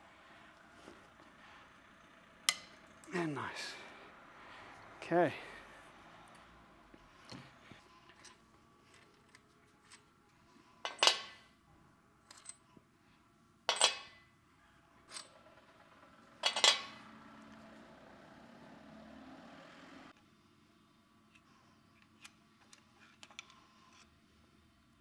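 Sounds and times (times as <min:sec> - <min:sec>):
faint steady hum: 0:00.0 - 0:15.2
metal parts clacking on metal: 0:10.8 - 0:11.4, 0:13.7 - 0:14.2, 0:16.4 - 0:17.0.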